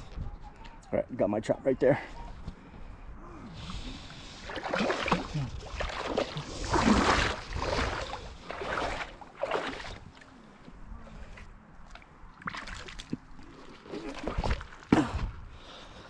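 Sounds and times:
wading through shallow water: 3.1 - 15.5.

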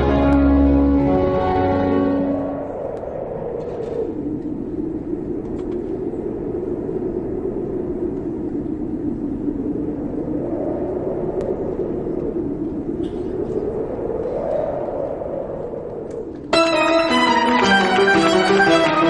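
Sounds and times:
low rumbling drone: 0.0 - 6.3
faint clicks: 11.3 - 14.9, 15.7 - 16.5.

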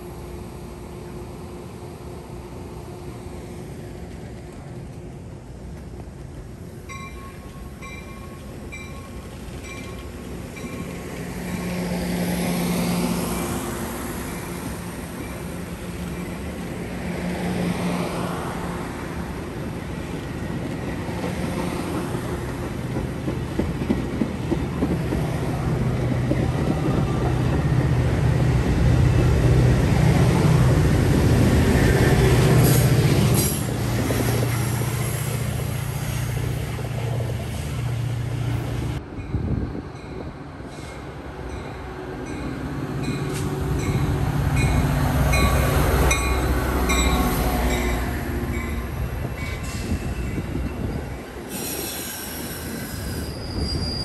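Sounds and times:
train wheels clicking over rail joints: 20.1 - 27.9.

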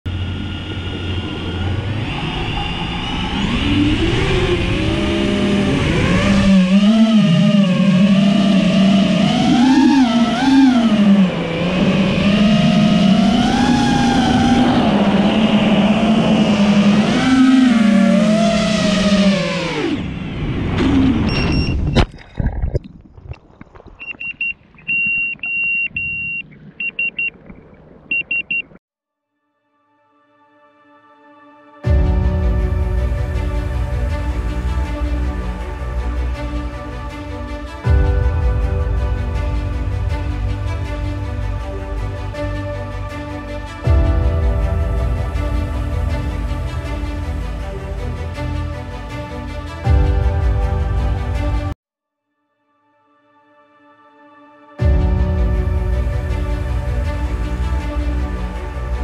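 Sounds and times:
quadcopter motors whining: 0.1 - 20.1
high-pitched electronic beeps: 21.3 - 22.0, 24.0 - 27.4, 28.1 - 28.8.

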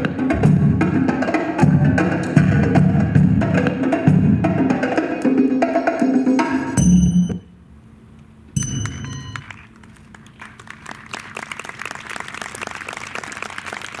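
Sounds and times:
ringing note of dance music: 6.8 - 7.5, 8.6 - 9.5
audience applause: 9.4 - 14.0.

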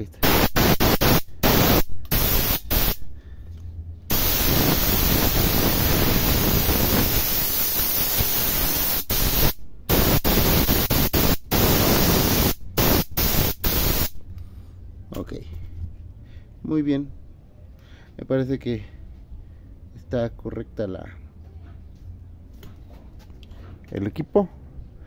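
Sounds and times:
compressed air hissing from spray gun: 0.2 - 3.2, 4.1 - 14.2.

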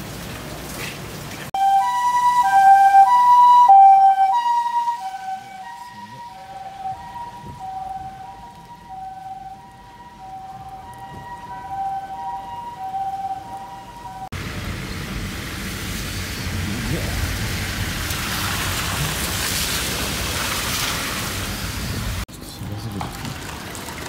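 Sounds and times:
two-tone ambulance siren: 1.6 - 14.4.

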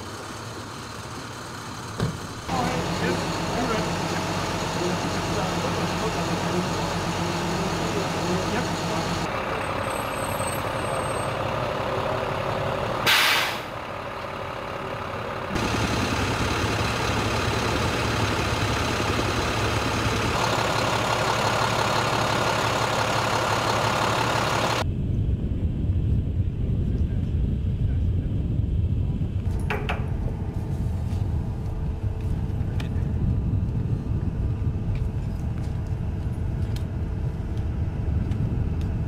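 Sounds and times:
tanker truck engine running: 0.0 - 24.9, 27.4 - 39.0
loud hiss of released air: 13.0 - 13.7
low rumble: 23.2 - 39.0.

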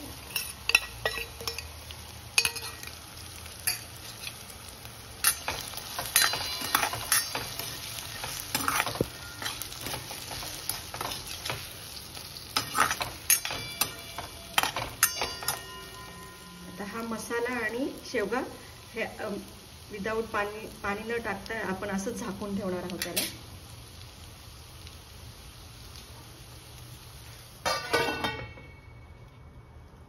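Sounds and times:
food sizzling in oil: 0.0 - 29.2
metal spoon scraping a pan: 0.2 - 1.8, 2.4 - 3.0, 3.6 - 4.5, 5.2 - 11.8, 12.4 - 16.5, 23.0 - 23.4.

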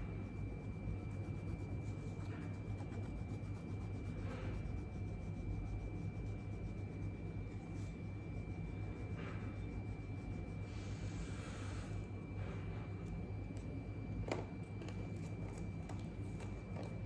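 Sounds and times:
pencil scratching on paper: 0.0 - 12.0
faint high whine: 0.0 - 17.0.

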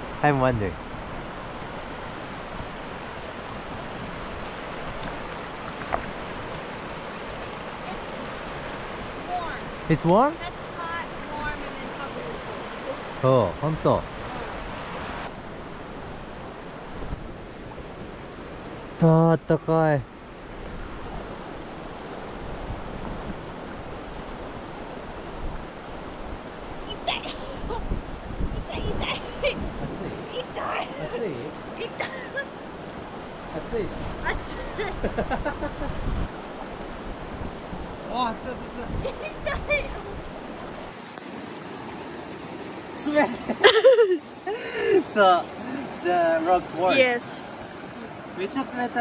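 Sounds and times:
river rushing over rocks: 0.0 - 15.3, 39.1 - 49.0
wind rumble on microphone: 10.5 - 18.9, 20.4 - 30.8, 32.8 - 41.8.

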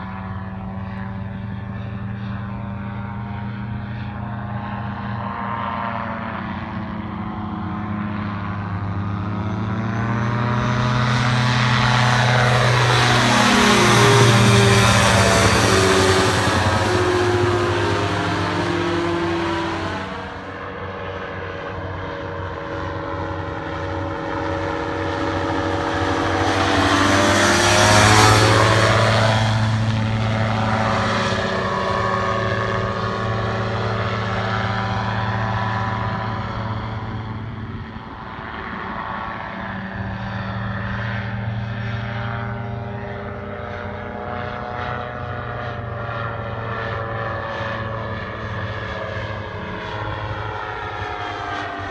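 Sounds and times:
gyroplane engine and propeller droning: 0.0 - 51.9.

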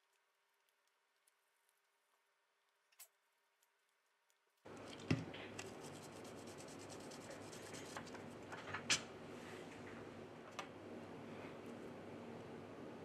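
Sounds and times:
tissue rubbing on metal stencil: 5.7 - 8.2.

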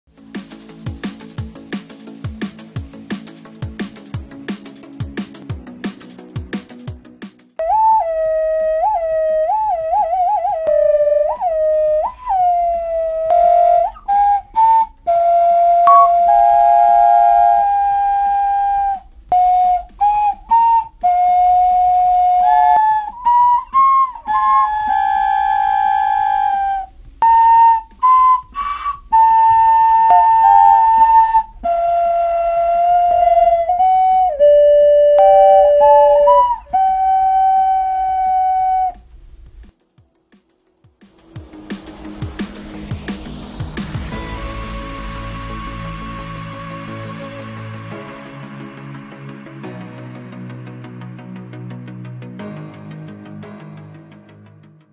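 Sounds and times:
clay whistle tones: 7.6 - 39.0.

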